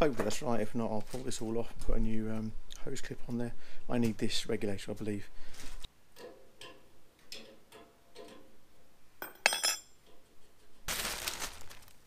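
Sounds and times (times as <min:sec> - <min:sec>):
metallic clink with ringing: 0:09.2 - 0:10.0
plastic packaging rustling: 0:10.8 - 0:12.0.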